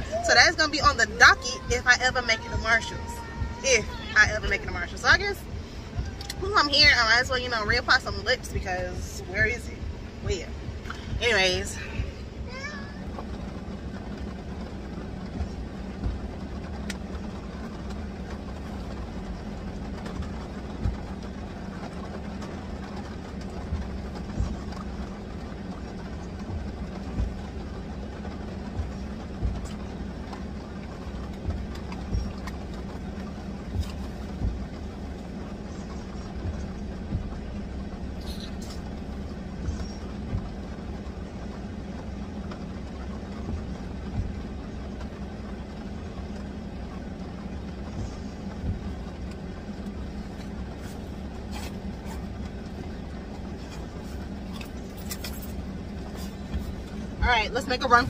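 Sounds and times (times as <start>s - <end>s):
car engine idling: 0.0s - 58.0s
heavy rain on a car: 0.0s - 58.0s
low thumps: 13.0s - 17.1s, 19.8s - 35.5s, 36.3s - 40.8s, 47.8s - 54.9s.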